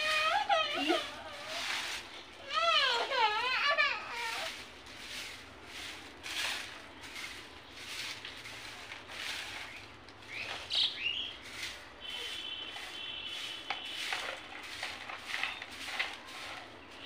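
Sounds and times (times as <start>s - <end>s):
broom sweeping concrete: 0.0s - 17.0s
birds chirping: 6.9s - 17.0s.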